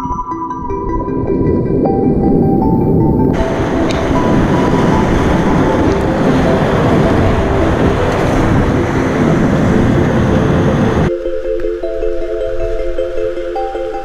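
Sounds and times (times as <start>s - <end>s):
roar of whitewater rapids: 3.4s - 11.1s
soft background music: 11.0s - 14.0s.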